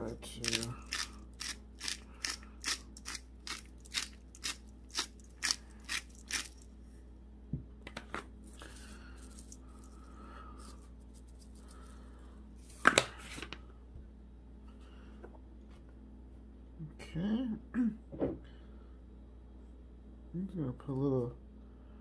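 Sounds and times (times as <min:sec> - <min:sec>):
seasoning shaker rattling: 0:00.0 - 0:06.7, 0:08.4 - 0:12.0.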